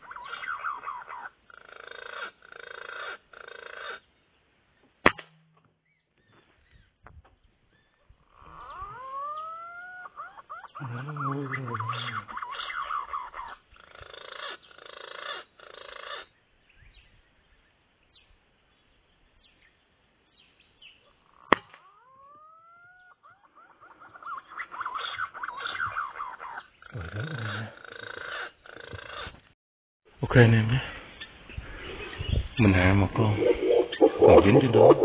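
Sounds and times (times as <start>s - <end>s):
dense bird chirping: 0.0s - 29.6s, 30.3s - 35.0s
air rifle shot: 5.0s - 5.6s
bird whistles gliding upward: 33.4s - 35.0s.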